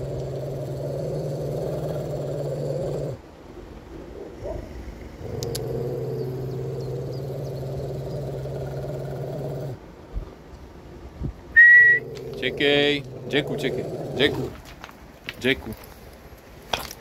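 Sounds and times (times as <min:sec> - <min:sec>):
dog growling: 0:00.0 - 0:03.2, 0:04.4 - 0:09.8, 0:11.9 - 0:14.7.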